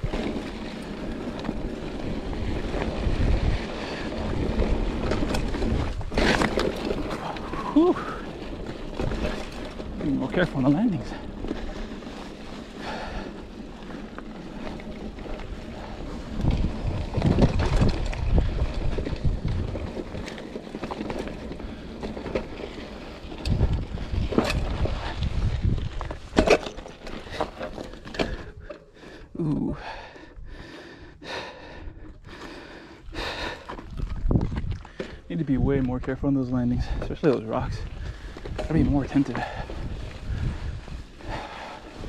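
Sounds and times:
wind buffeting microphone: 1.1s - 6.2s, 15.2s - 20.3s, 23.3s - 26.3s, 33.1s - 42.0s
bike knocking and clattering on rocks: 4.2s - 12.0s, 12.8s - 28.9s, 33.4s - 41.6s.

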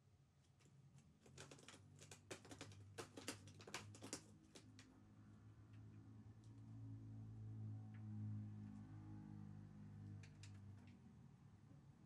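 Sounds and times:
cat paws tapping on desk: 1.1s - 4.9s.

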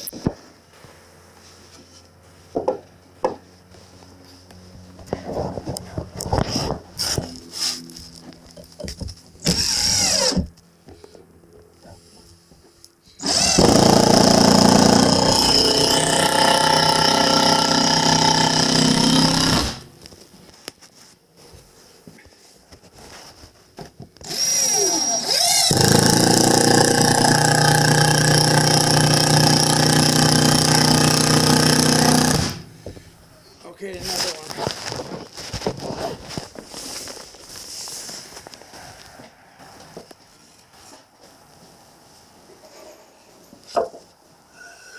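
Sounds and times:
power drill boring into wood: 9.4s - 10.5s, 13.2s - 19.9s, 24.2s - 32.7s.

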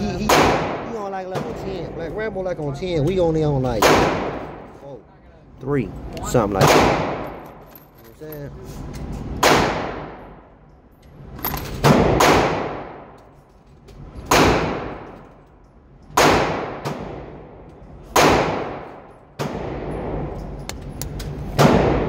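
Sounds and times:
gunshots echoing indoors: 0.1s - 1.7s, 3.7s - 4.8s, 6.6s - 7.5s, 9.3s - 10.6s, 11.8s - 13.3s, 14.2s - 15.3s, 16.1s - 20.5s, 21.4s - 22.0s.

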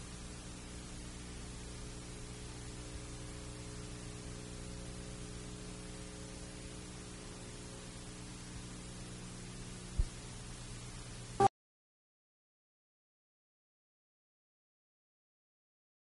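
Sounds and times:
low electrical mains hum: 0.0s - 11.5s
steady hiss: 0.0s - 11.5s.

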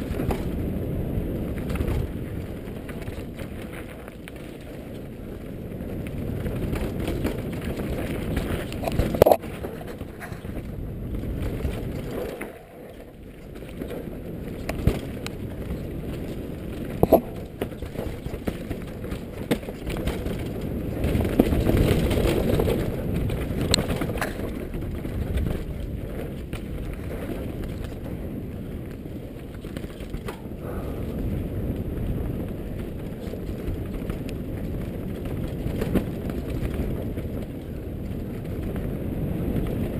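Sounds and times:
bike knocking on rocks: 0.0s - 0.7s, 6.0s - 28.2s
bike tyres rumbling over stones: 0.0s - 39.9s
wind buffeting microphone: 0.0s - 39.9s.

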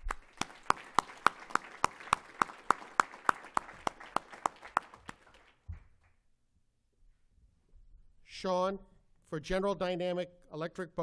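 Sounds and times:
audience applause: 0.0s - 5.7s
person clapping near microphone: 0.0s - 6.2s.

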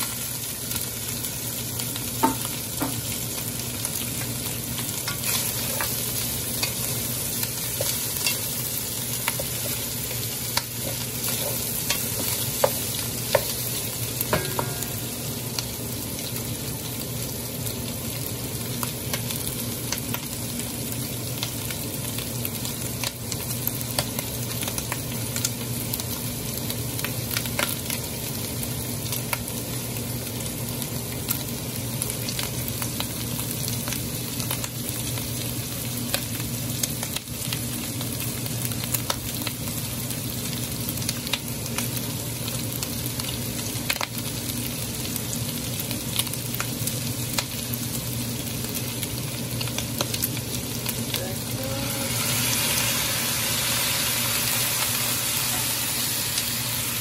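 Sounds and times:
meat and onions sizzling: 0.0s - 57.0s
low steady hum: 2.4s - 17.0s.

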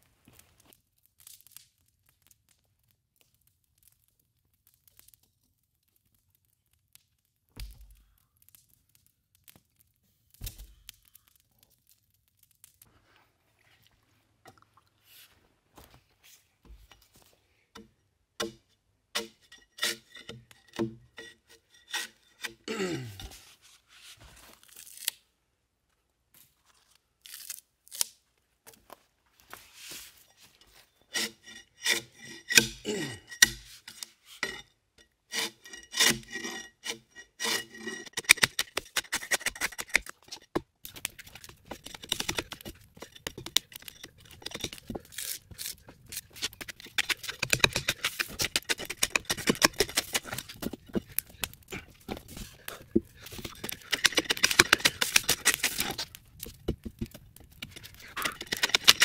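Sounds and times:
bark spud scraping log: 19.2s - 24.2s, 29.6s - 34.7s, 35.3s - 59.0s
bark strips tearing: 24.6s - 25.2s, 27.2s - 28.2s, 36.0s - 59.0s.

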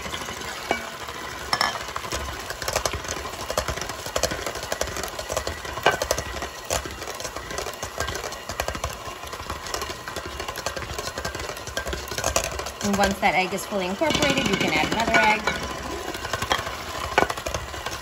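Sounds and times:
electric hand mixer running: 0.0s - 18.0s
beaters knocking against bowl: 14.0s - 15.8s.

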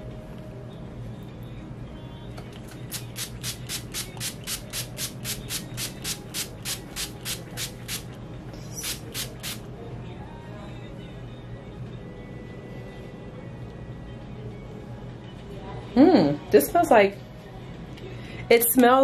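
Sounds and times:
spray bottle pumping: 2.8s - 9.6s.

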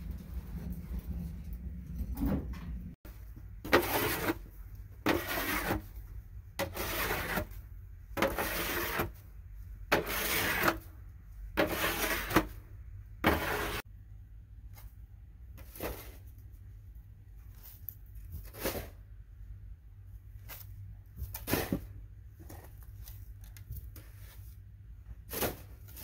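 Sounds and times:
plastic snow shovel scraping snow: 3.7s - 6.0s, 6.6s - 7.6s, 8.2s - 9.2s, 9.9s - 10.9s, 11.6s - 12.6s, 13.2s - 13.8s.

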